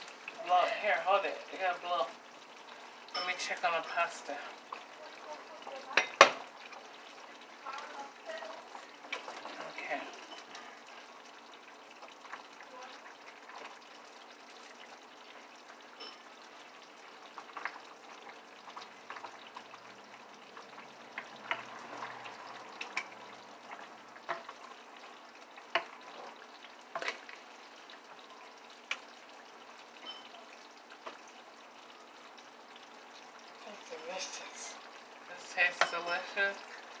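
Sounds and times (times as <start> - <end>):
pots hissing on stovetop: 0.0 - 37.0
utensils clinking on cookware: 3.1 - 4.3, 5.9 - 6.4, 9.1 - 10.6, 16.0 - 16.3, 30.0 - 30.4, 35.6 - 36.8.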